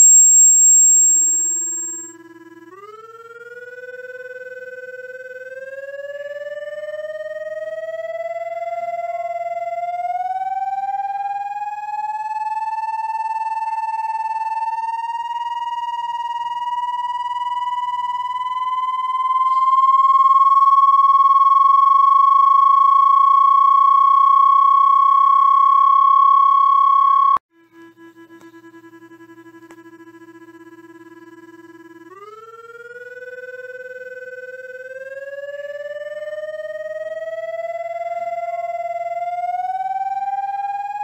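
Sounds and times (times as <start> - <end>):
loud buzzy electronic tone: 0.0 - 2.1
quiet low steady tone: 0.0 - 2.1.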